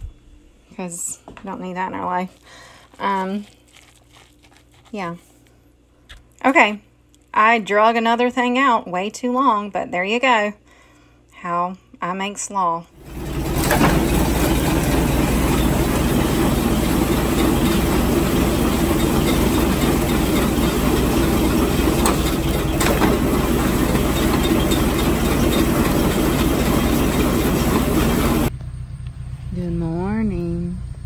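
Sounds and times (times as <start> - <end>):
feed grinder grinding corn: 13.0 - 28.5.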